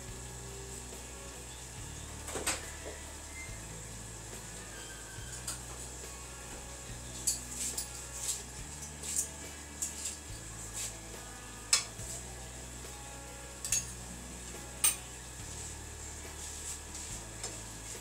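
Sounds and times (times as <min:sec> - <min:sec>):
metal spoons clinking on pots: 0:13.6 - 0:14.0, 0:14.8 - 0:15.1.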